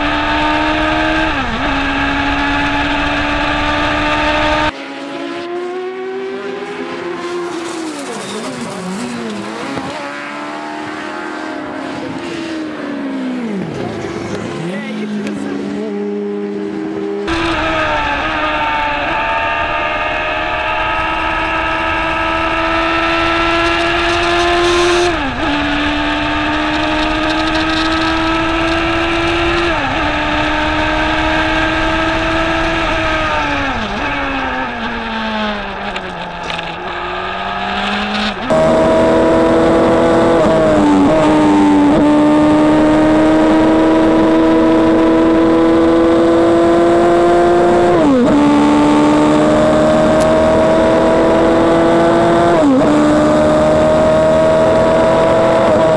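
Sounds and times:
race car engine revving: 0.0s - 55.9s
gear upshifts: 16.7s - 55.9s.

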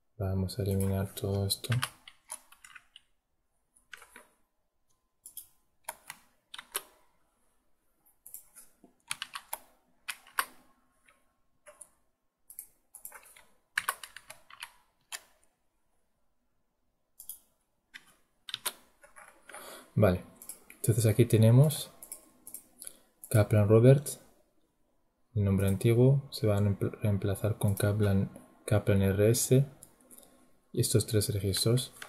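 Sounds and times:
keyboard keys clicking: 0.7s - 3.1s, 3.8s - 4.3s, 5.2s - 7.0s, 8.3s - 11.9s, 12.5s - 15.3s, 17.2s - 19.4s.

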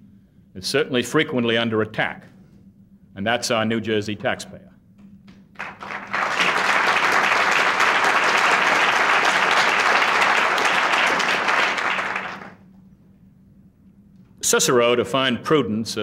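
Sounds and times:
audience applauding: 5.6s - 12.6s.

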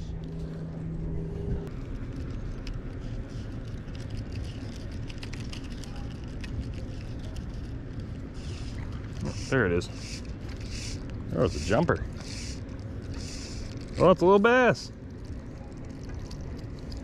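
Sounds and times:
short steady hum: 0.0s - 3.6s.

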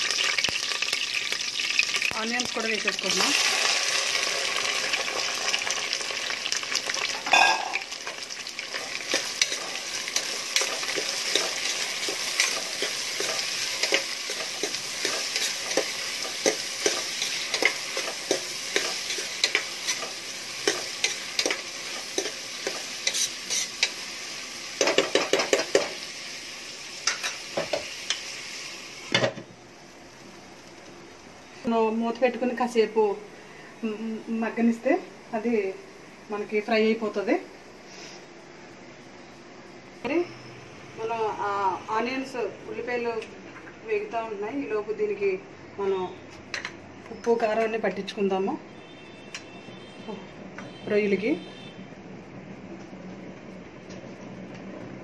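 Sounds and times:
onions sizzling in hot oil: 0.0s - 32.9s
metal spoon scraping a pot: 22.2s - 23.9s.

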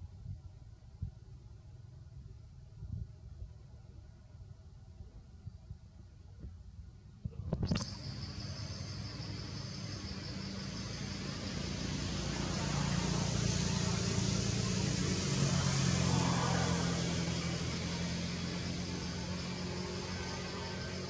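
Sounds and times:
vehicle engine hum: 7.1s - 21.0s.

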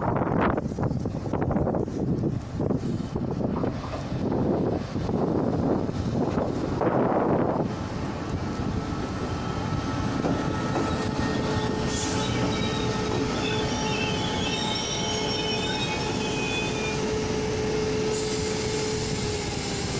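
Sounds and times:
steady train hum: 0.0s - 19.9s
train wheels rumbling on rail: 0.0s - 19.9s
high wheel squeals: 8.9s - 19.9s.

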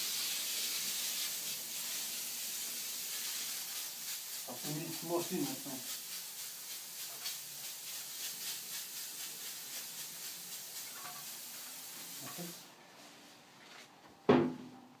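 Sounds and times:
pressure sprayer hissing: 0.0s - 12.7s.

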